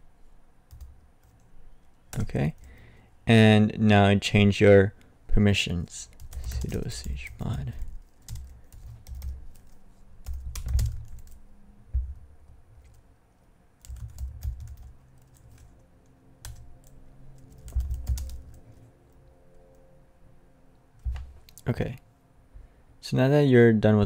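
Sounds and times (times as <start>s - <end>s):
computer keyboard typing: 0.7s - 1.4s, 6.1s - 11.4s, 13.8s - 18.7s.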